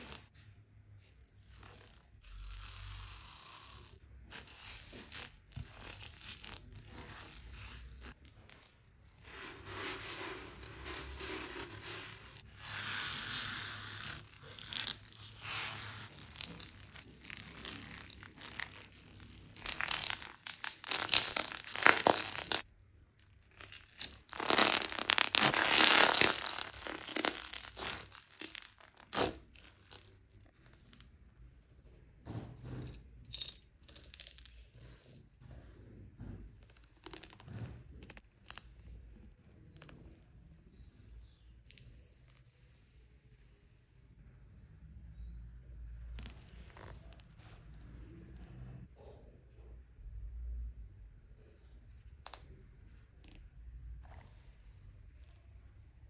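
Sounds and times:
hands squishing slime: 4.3 - 22.7, 23.5 - 31.0
foam beads popping: 4.5 - 22.7, 23.4 - 31.0.

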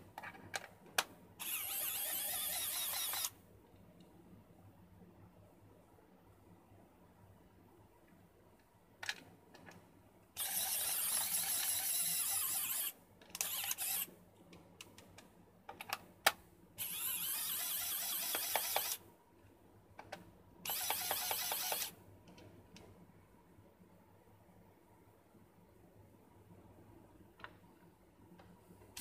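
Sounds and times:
small electric motor whirring: 1.4 - 3.3, 10.4 - 14.1, 16.8 - 19.0, 20.7 - 21.9.

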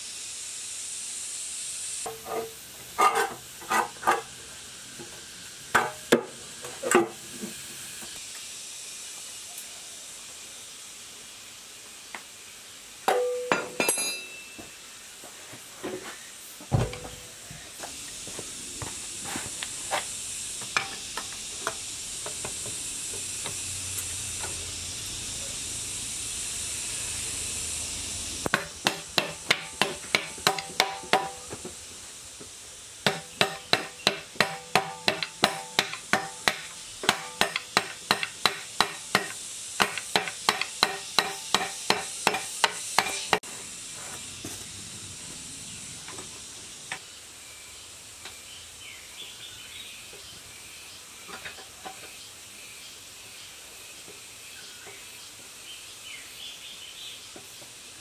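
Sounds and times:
steady hiss: 0.0 - 58.0
hammer striking metal: 13.1 - 14.6, 28.5 - 31.5, 33.1 - 43.5.

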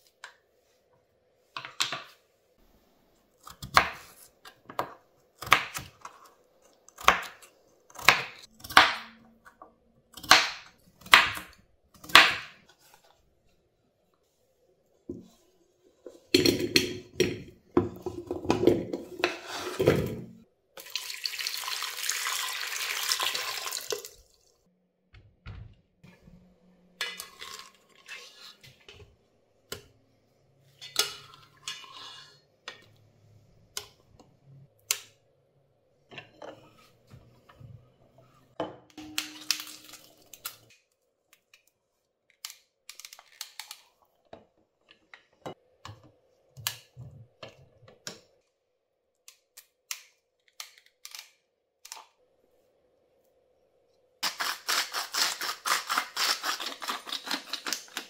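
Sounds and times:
water running into pot: 20.8 - 24.5.

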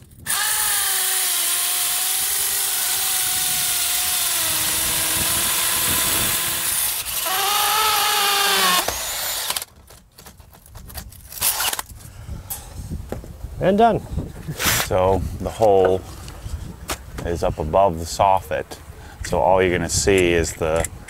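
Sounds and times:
power drill whining under load: 0.0 - 9.7.

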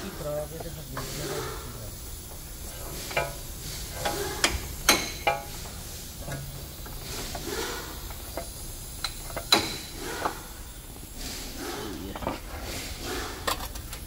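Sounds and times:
steady hiss: 0.0 - 14.0
metallic clicks and knocks of bearing: 4.0 - 10.4.

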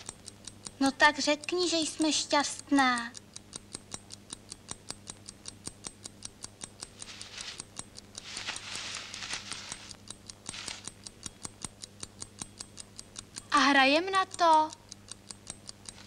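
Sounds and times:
rapid sharp ticking: 0.0 - 16.0
soft rustling: 6.9 - 11.0.

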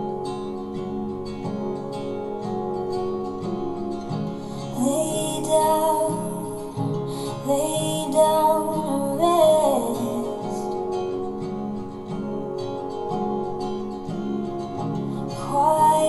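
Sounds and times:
song with acoustic guitar: 0.0 - 16.0
person singing: 4.4 - 11.1, 15.1 - 16.0.

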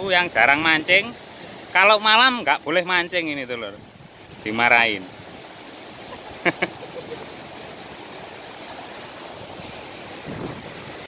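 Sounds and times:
surf breaking over rocks: 0.0 - 11.0
man laughing: 6.1 - 7.4.

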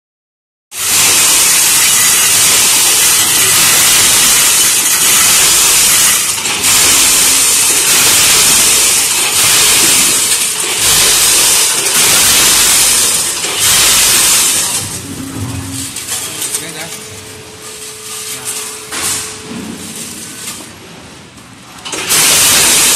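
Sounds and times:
metal springs rattling on steel pans: 0.8 - 17.1.

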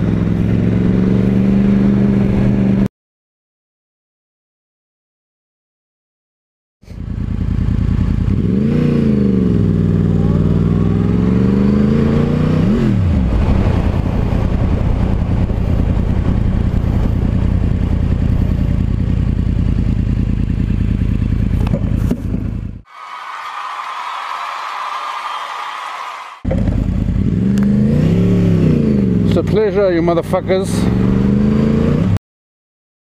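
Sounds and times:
motorcycle engine accelerating hard: 0.0 - 2.9, 6.9 - 22.8, 26.4 - 32.2.

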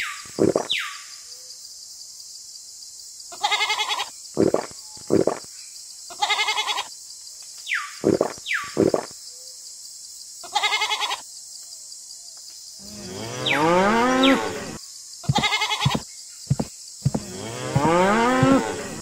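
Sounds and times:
cow mooing: 12.8 - 16.0, 17.1 - 19.0
sheep bleating: 15.3 - 16.0.

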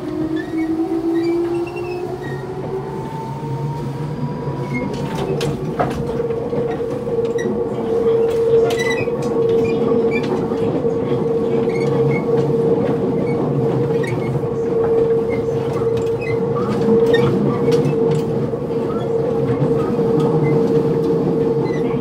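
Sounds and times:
train running rumble: 0.0 - 22.0.

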